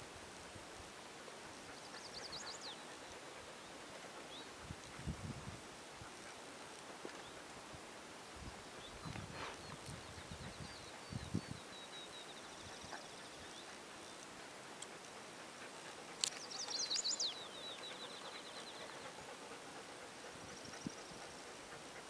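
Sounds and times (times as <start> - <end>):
steady background hiss: 0.0 - 22.0
songbird singing: 1.5 - 4.6, 8.4 - 21.6.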